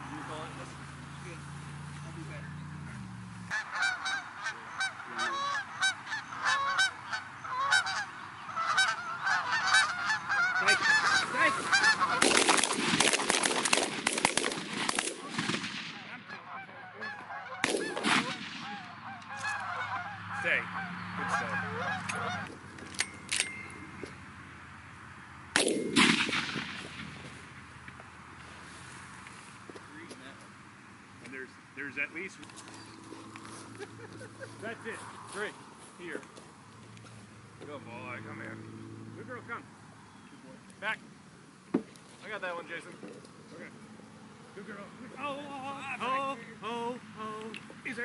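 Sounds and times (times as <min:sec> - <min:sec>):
geese honking: 0:02.1 - 0:13.0, 0:16.0 - 0:22.6
shotgun blasts: 0:12.1 - 0:16.2, 0:17.6 - 0:18.9, 0:25.5 - 0:27.2.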